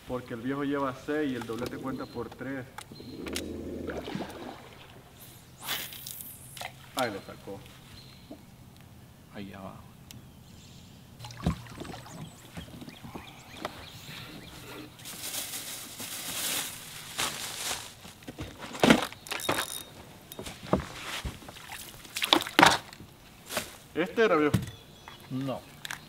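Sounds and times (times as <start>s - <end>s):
hissing noise: 5.0s - 6.8s
knocks and shuffles on boat deck: 11.3s - 14.9s, 18.0s - 21.8s.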